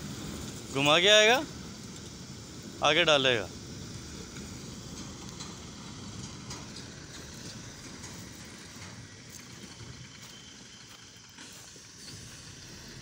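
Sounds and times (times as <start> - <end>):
diesel truck engine rumbling: 0.0 - 13.0
tyres on gravel: 4.2 - 13.0.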